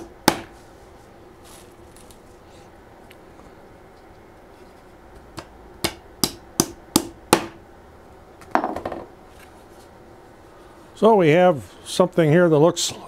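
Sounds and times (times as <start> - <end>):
hammer striking nails: 0.0 - 0.5, 5.8 - 7.6.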